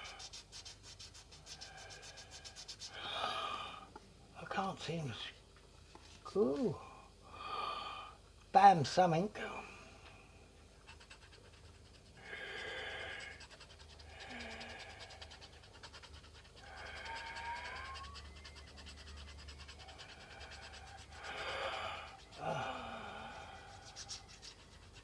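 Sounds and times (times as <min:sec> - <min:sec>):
scratch card being scratched: 0:00.0 - 0:03.0, 0:10.8 - 0:12.2, 0:13.2 - 0:22.4, 0:23.6 - 0:25.0
man breathing out: 0:21.1 - 0:23.8.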